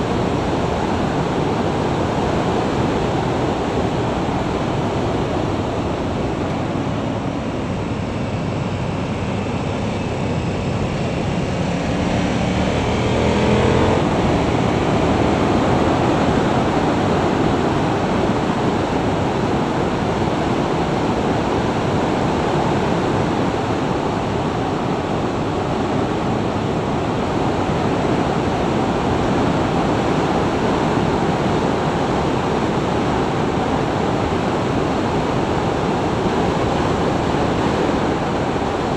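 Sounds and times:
wind rushing over microphone: 0.0 - 38.9
motorcycle engine: 8.2 - 15.9.

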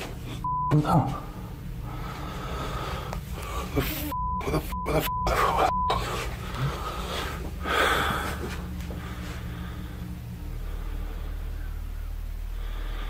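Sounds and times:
censor bleeps: 0.4 - 1.2, 4.0 - 6.0
voice: 0.7 - 1.3, 3.7 - 6.1.

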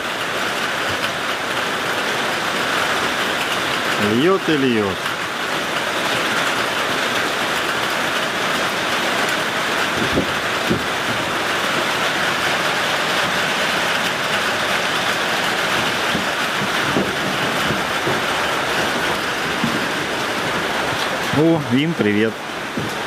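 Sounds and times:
heavy rain pouring: 0.0 - 23.0
soft knocks: 10.0 - 11.2, 15.8 - 21.1, 22.7 - 23.0.

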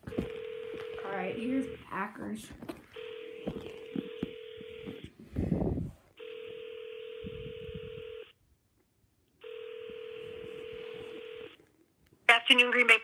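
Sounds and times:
phone ringback tone: 0.0 - 1.8, 3.0 - 5.1, 6.2 - 8.3, 9.4 - 11.6.

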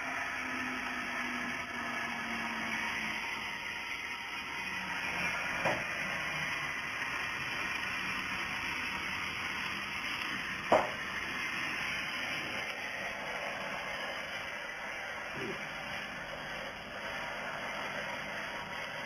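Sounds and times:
laser cutting head hiss: 2.4 - 19.0
short sharp pop: 10.7 - 11.0.

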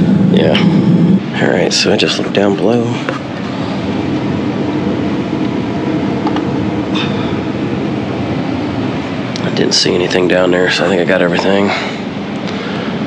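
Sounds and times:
furnace low hum: 0.0 - 13.0.

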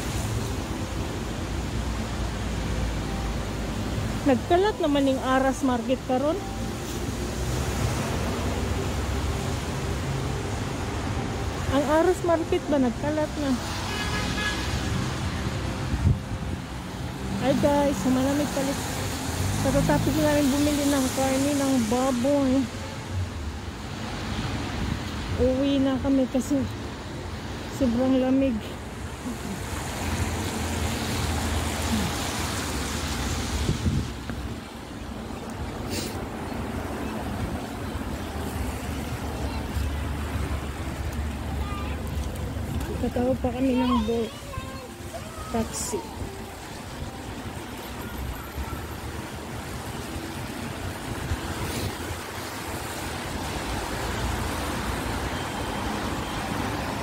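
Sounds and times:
low traffic rumble: 0.0 - 57.0
tyres hissing on wet road: 0.0 - 57.0
wind buffeting microphone: 33.6 - 34.5.

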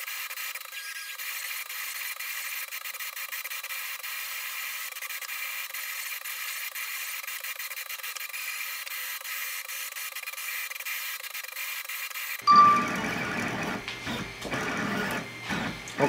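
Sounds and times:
stepper motors whirring: 0.0 - 12.4
brief high beep: 12.5 - 13.3.

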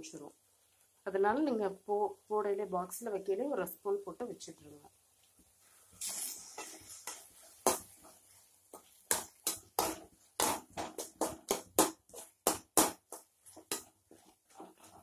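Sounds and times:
spoon scraping and knocking a pan: 5.4 - 15.0.

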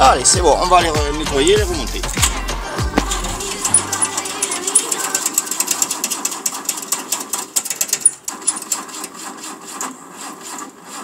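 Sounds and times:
sharp mechanical clicks and scraping: 3.0 - 11.0.

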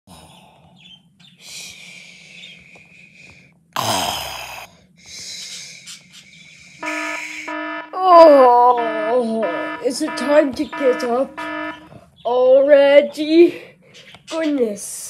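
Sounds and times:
person snoring: 3.8 - 5.4
repeating beeping tone: 6.8 - 11.9.

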